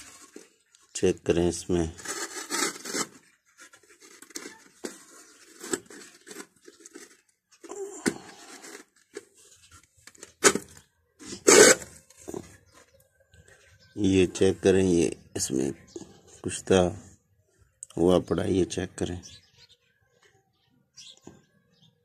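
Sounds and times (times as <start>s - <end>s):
hand scraping through dry ash: 1.7s - 12.7s.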